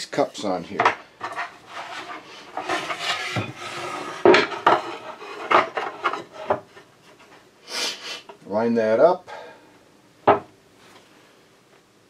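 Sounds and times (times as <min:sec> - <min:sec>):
wood scraping on wood: 0:00.4 - 0:07.5.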